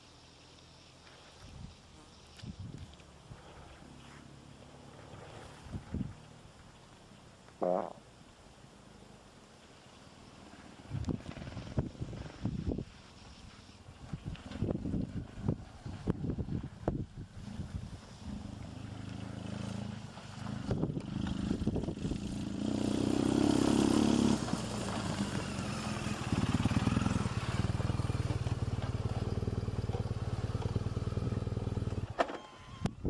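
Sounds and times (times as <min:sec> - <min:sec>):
motorcycle engine running: 0:10.4 - 0:12.9, 0:14.1 - 0:32.2.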